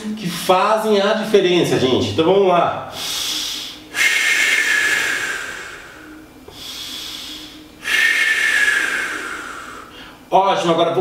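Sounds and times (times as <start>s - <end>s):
man breathing deeply: 2.9s - 10.3s.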